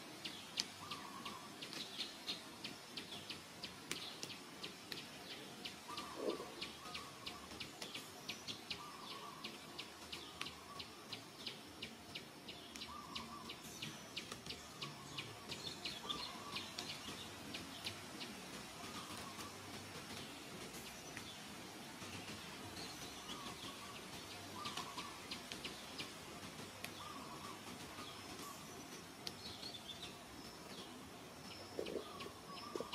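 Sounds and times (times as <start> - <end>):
lower bird calls: 5.8 - 7.6, 31.6 - 32.9.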